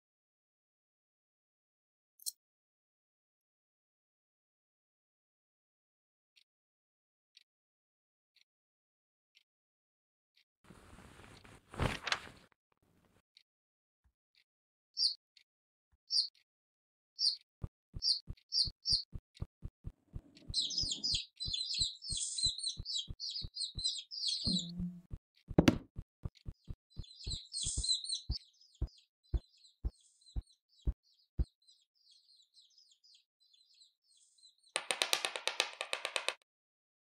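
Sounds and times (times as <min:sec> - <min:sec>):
cartoon chicks chirping: 0:18.0 - 0:19.5, 0:20.2 - 0:25.1, 0:26.4 - 0:33.2
loud knock: 0:25.6 - 0:25.9.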